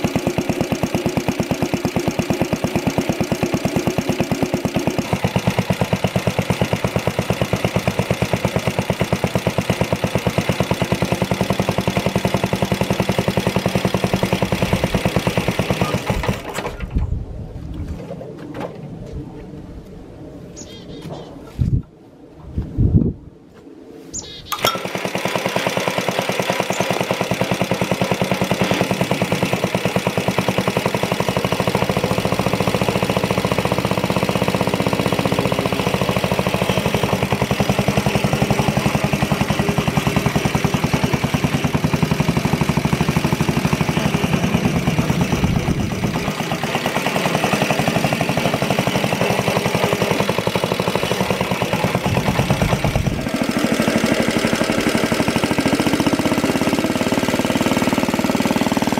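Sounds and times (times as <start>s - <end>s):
starter rope pull: 0.0s - 16.9s, 24.5s - 58.9s
single-cylinder engine running: 0.0s - 17.0s, 24.5s - 58.9s.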